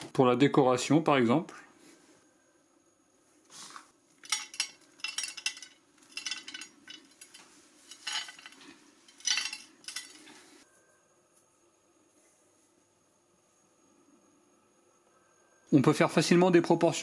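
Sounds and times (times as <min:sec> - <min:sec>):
nut pieces pattering onto ceramic plate: 0:04.2 - 0:10.2.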